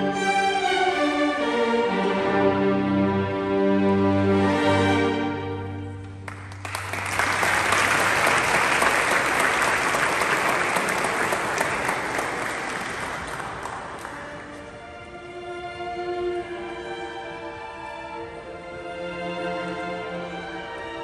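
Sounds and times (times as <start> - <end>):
audience applauding: 6.2 - 14.8.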